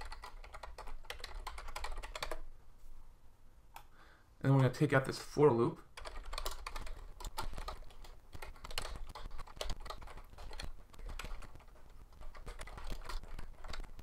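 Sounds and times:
typing on computer keyboard: 0.0 - 2.4, 5.9 - 14.0.

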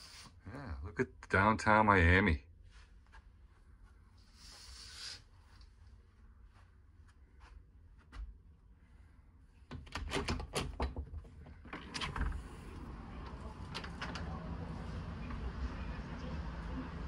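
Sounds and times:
outdoor noise: 9.4 - 17.0
door latch clicks and rattles: 9.7 - 14.3.

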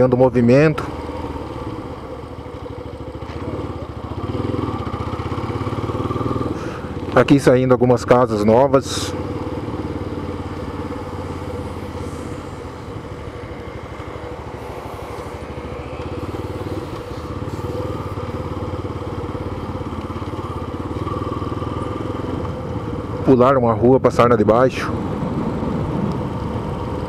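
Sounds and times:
motorcycle engine drone: 0.0 - 27.0
wind rush on microphone: 24.9 - 27.0.

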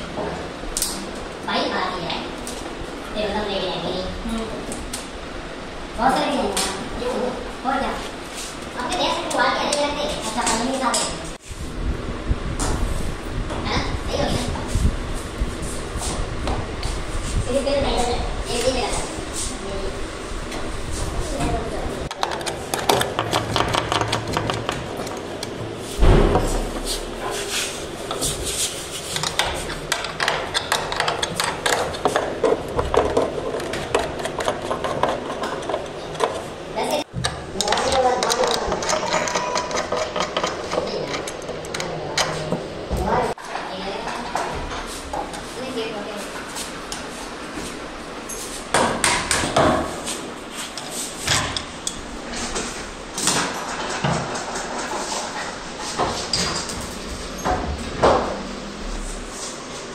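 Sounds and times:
heavy knock: 26.0 - 27.0
spanner clicking and scraping: 37.2 - 42.3.

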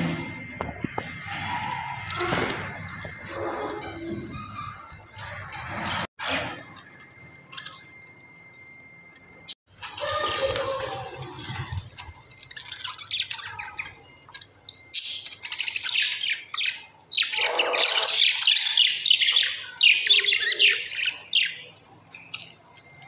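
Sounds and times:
budgerigars chirping and chattering: 12.4 - 22.6.

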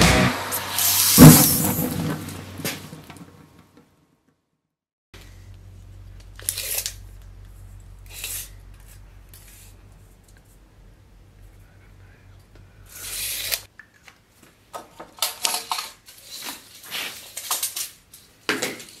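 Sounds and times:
intro music: 0.0 - 1.4
low electrical hum: 5.2 - 15.4
hand tool scraping strokes: 8.0 - 9.8, 12.9 - 13.7.

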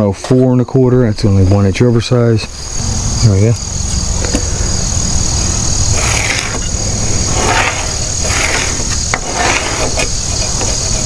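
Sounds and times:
crickets chirping: 0.0 - 11.0
pencil scratching on wood: 6.0 - 11.0.

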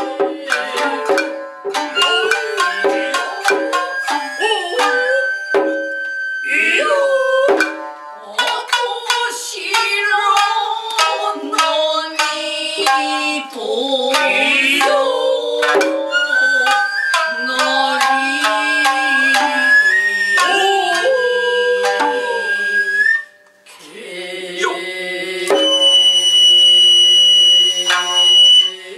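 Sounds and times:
stick drum strikes: 0.0 - 6.0, 7.4 - 13.4, 14.2 - 16.8, 25.5 - 26.0
bamboo flute long high notes: 0.0 - 8.6, 14.2 - 23.6, 24.6 - 28.9
hand drums: 0.0 - 22.6, 25.5 - 26.3
shamisen plucking melody: 0.0 - 23.6, 25.5 - 28.9.

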